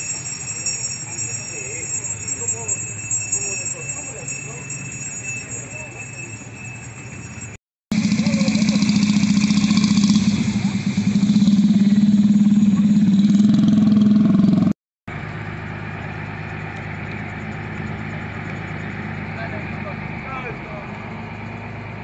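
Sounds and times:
quieter engine idling: 0.0 - 22.0
loud engine idling: 7.9 - 22.0.

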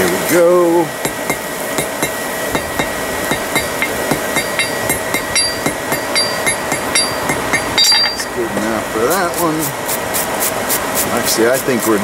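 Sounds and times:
hammer striking hot steel on anvil: 1.0 - 8.4.

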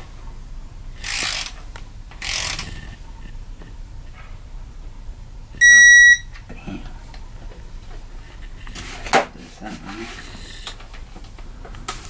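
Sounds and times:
hand wrench ratcheting: 1.0 - 1.6, 2.2 - 2.7
high-pitched electronic beep: 5.6 - 6.2.

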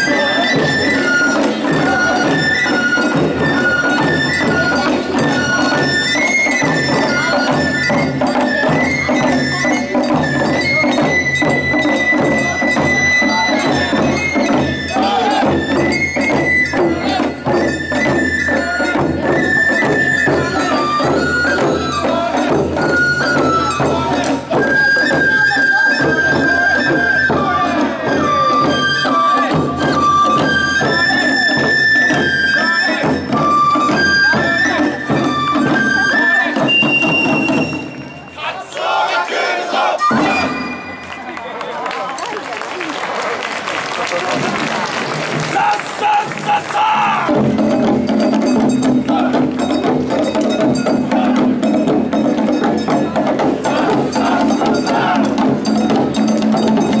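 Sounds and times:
flute playing long notes: 0.0 - 38.4, 39.9 - 41.5
drum beats: 0.0 - 39.2, 39.8 - 42.2, 42.8 - 57.0.

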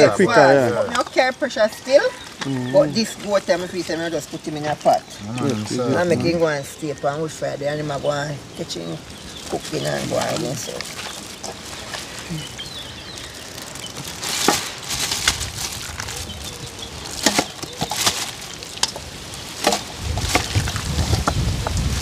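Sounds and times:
plastic bag rustling and crinkling: 7.9 - 22.0.

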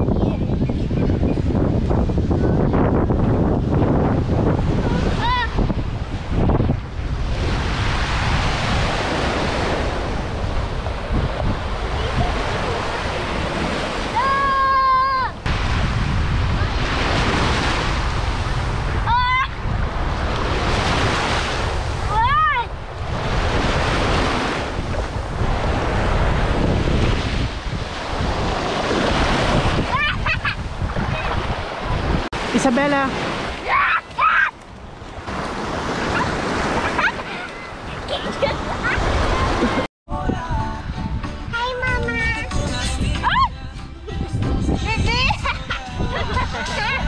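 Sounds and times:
wind rumbling on microphone: 0.0 - 47.0
small waves washing on sand: 3.3 - 39.9
high-pitched voice: 41.5 - 43.5.

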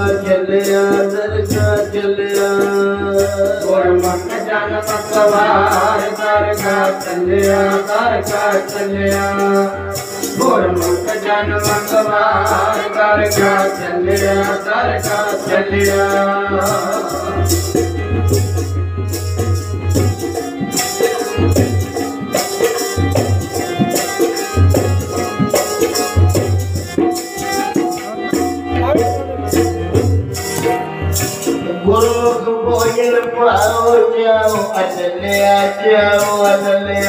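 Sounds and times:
rattling percussion: 0.0 - 37.0
sustained instrumental melody: 9.4 - 36.0.

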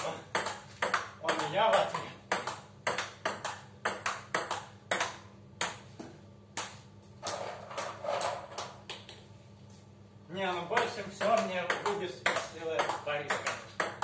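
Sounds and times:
ping pong ball clicking: 0.3 - 5.9, 10.8 - 14.0.

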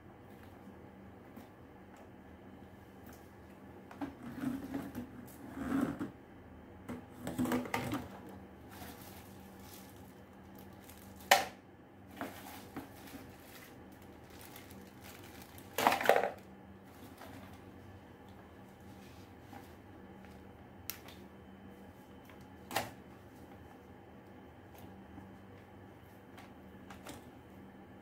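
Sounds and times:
plastic parts knocking and rustling: 14.3 - 16.4
plastic clatter: 15.7 - 16.4.

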